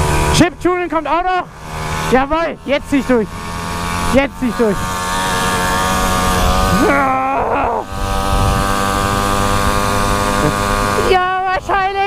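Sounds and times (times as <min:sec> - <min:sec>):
small engine high-revving drone: 0:00.0 - 0:12.0
wind noise: 0:07.8 - 0:11.1.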